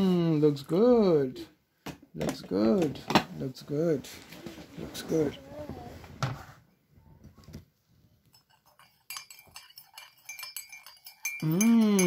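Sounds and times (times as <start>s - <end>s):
teaspoon clinking in a mug: 8.2s - 12.0s
person humming: 11.4s - 12.0s.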